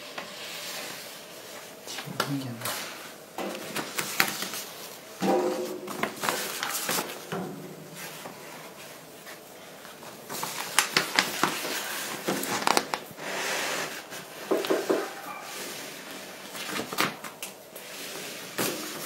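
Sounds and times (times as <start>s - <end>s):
laminating film rustling and crackling: 3.5s - 7.3s, 8.0s - 13.3s, 13.9s - 19.0s.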